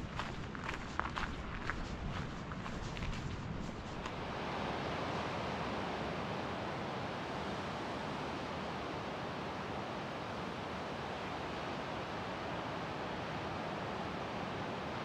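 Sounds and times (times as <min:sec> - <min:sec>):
ocean surf breaking: 0:04.0 - 0:15.0.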